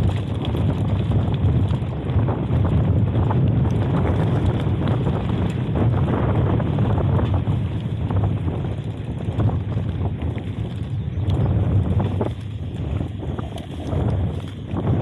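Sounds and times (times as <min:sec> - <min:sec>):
bike rattles and clicks: 0:00.0 - 0:15.0
mountain bike rolling on trail: 0:00.0 - 0:15.0
wind buffeting microphone: 0:00.0 - 0:15.0.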